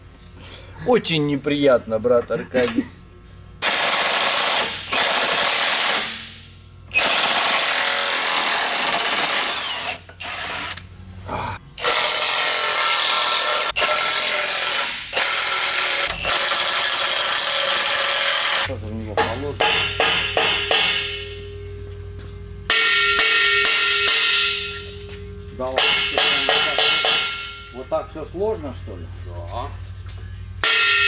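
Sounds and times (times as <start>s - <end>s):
impact wrench hammering bolts: 11.8s - 21.4s, 22.7s - 24.9s, 25.7s - 27.8s.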